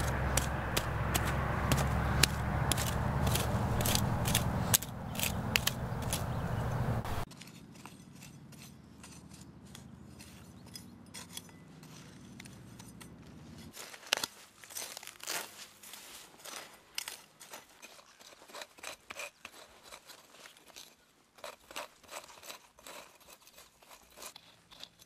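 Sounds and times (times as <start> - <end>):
steady low rumble: 0.0 - 7.3
hoe scraping and chopping soil: 0.0 - 25.0.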